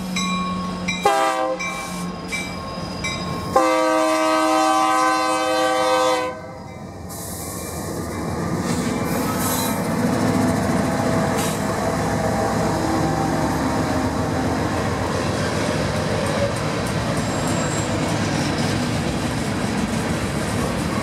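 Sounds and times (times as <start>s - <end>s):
train cars rumbling past: 0.0s - 21.0s
locomotive air horn chord: 1.0s - 2.0s, 3.5s - 6.6s.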